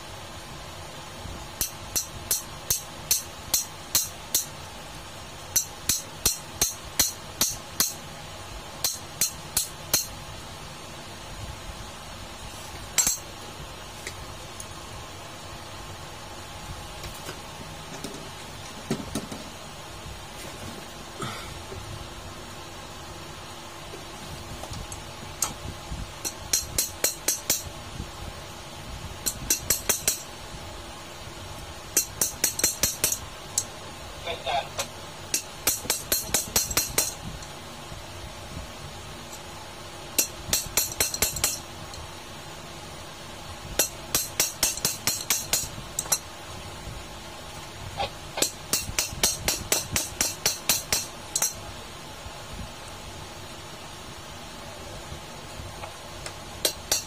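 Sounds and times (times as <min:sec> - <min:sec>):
spanner tapping metal shaft: 0:01.6 - 0:04.5, 0:05.5 - 0:08.0, 0:08.8 - 0:10.1, 0:13.0 - 0:13.2, 0:26.2 - 0:27.7, 0:29.2 - 0:30.3, 0:32.0 - 0:33.7, 0:35.3 - 0:37.5, 0:40.2 - 0:42.0, 0:43.8 - 0:46.2, 0:48.4 - 0:51.6, 0:56.2 - 0:57.0.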